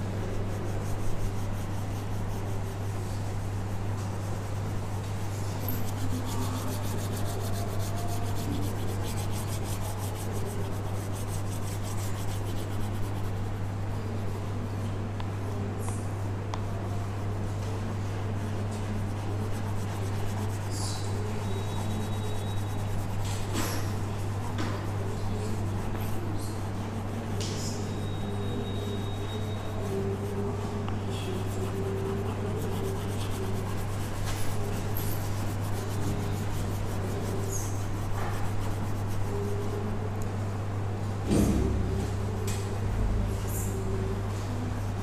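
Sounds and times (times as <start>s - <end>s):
chalk taps: 0.0s - 13.8s, 18.6s - 40.3s
chalk scratching on blackboard: 0.0s - 14.4s, 16.5s - 40.2s.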